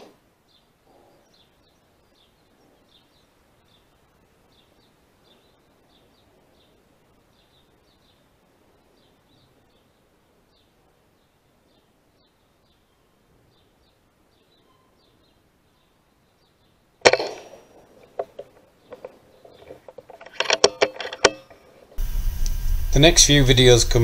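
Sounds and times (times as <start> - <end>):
faint high chirps: 0.5 - 16.7
rifle shot: 17.0 - 17.7
sharp clicks and knocks: 17.0 - 22.6.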